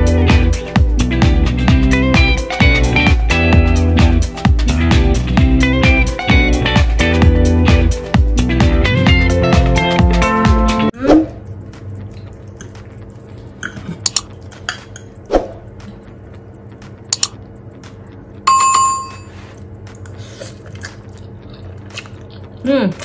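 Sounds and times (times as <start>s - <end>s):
bell-like ding: 18.5s - 19.3s.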